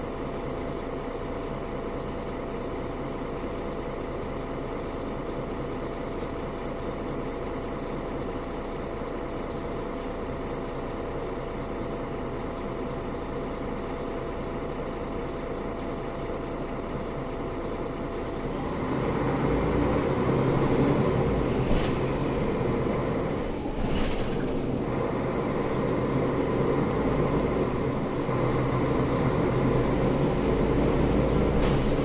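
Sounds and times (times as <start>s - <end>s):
bus engine: 0.0s - 32.0s.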